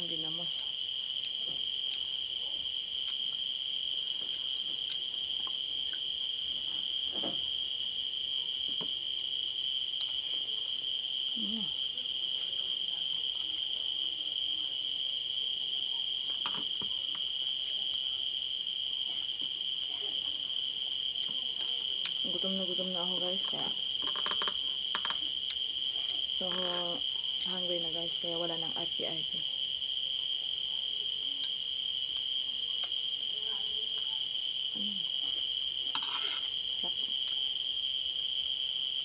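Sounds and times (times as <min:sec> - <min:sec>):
crickets trilling: 0:00.0 - 0:39.0.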